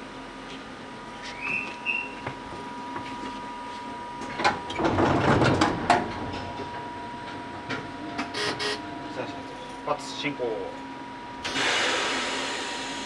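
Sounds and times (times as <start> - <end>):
steady train car hum: 0.0 - 13.0
train doors closing: 7.3 - 8.8, 11.4 - 13.0.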